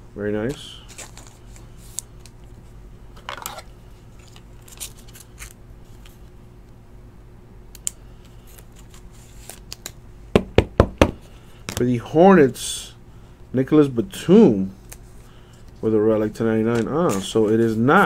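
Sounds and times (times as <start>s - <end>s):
steady low hum: 0.0s - 18.0s
trading card clicks and rustles: 0.4s - 2.6s, 3.2s - 6.3s, 7.8s - 10.0s, 16.6s - 18.0s.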